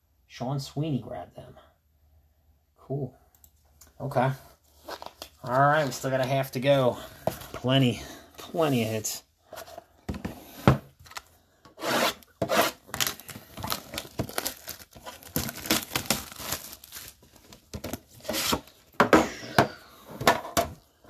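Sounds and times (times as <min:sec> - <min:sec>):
cardboard boxes rubbing and scraping: 0:18.2 - 0:18.7.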